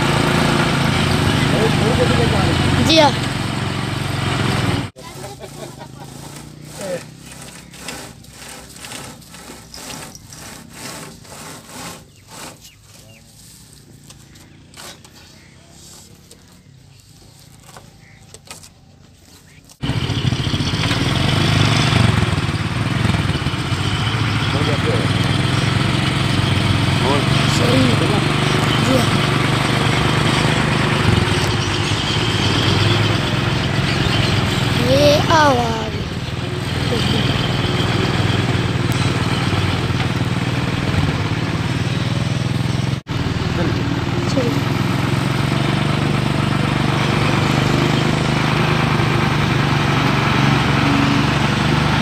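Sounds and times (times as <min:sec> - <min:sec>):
diesel truck engine running: 0:00.0 - 0:18.2, 0:18.9 - 0:52.0
rope rubbing against wood: 0:04.9 - 0:19.8.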